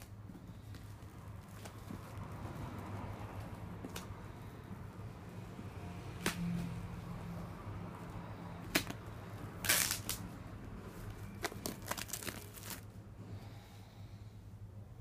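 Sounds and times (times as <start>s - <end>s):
packaging tearing by hand: 9.6s - 10.2s, 11.4s - 12.9s.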